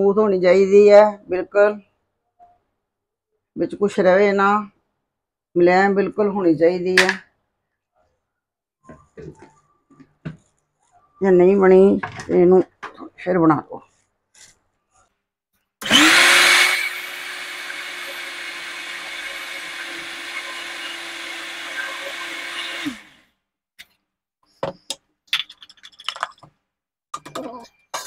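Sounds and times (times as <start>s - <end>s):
mixer grinder motor running: 15.8s - 23.2s.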